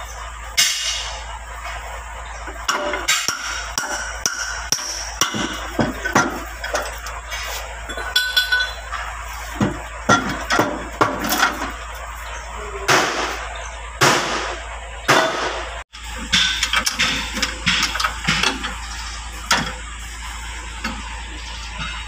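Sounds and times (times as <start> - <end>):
scraping noises: 6.5 - 7.9.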